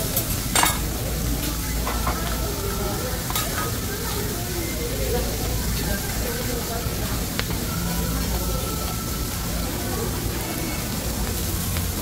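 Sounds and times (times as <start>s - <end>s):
food sizzling on a griddle: 0.0s - 12.0s.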